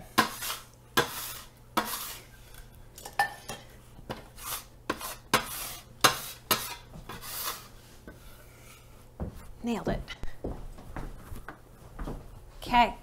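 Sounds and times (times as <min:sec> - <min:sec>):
metal scraper scraping stone countertop: 0:00.0 - 0:02.3, 0:04.2 - 0:07.7.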